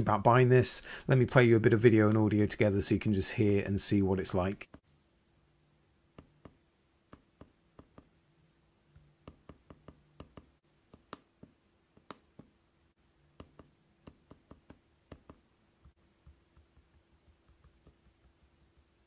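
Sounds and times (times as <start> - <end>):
finger taps on trackpad clicking: 9.2 - 12.5, 13.4 - 18.4.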